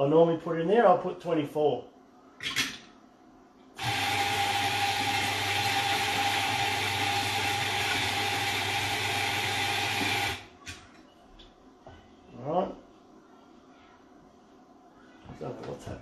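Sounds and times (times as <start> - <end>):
electric coffee grinder running: 3.8 - 10.5.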